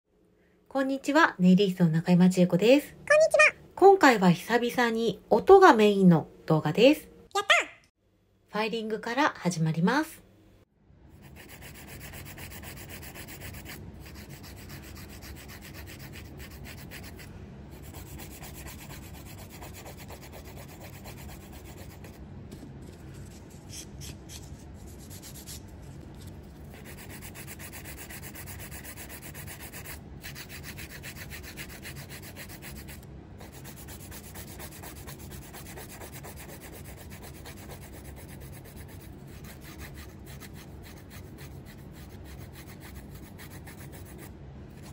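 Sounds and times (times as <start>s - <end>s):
nail file rasping: 11.2s - 17.2s, 17.8s - 22.1s, 26.7s - 44.2s.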